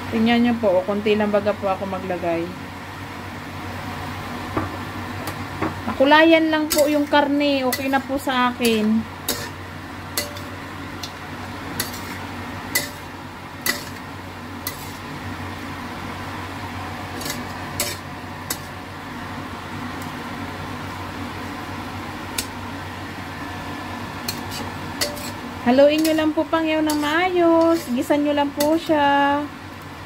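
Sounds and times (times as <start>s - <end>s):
frying sizzle: 0.0s - 30.0s
metal spatula scraping wok: 6.4s - 15.3s, 17.0s - 18.8s, 24.1s - 29.0s.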